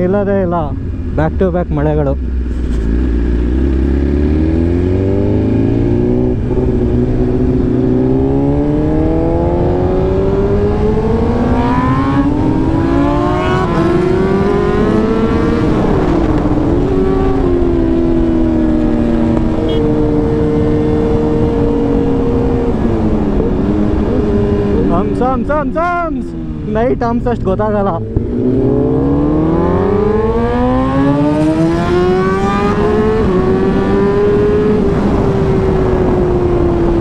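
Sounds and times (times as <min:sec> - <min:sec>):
motorcycle engine accelerating: 0:02.1 - 0:25.6, 0:26.2 - 0:37.0
wind noise: 0:02.2 - 0:37.0.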